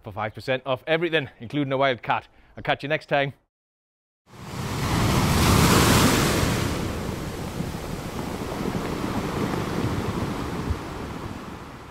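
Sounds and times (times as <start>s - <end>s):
sea surf washing on shore: 4.3s - 11.9s.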